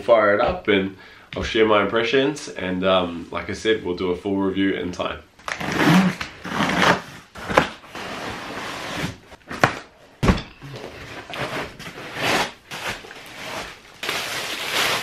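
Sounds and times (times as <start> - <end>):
cardboard and foam rustling: 6.0 - 15.0
heavy thud: 10.2 - 10.7
plastic wrap crinkling: 10.9 - 15.0.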